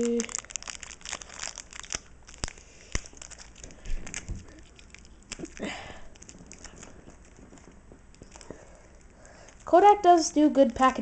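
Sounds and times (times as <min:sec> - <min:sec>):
packaging rustling: 0:00.0 - 0:09.7.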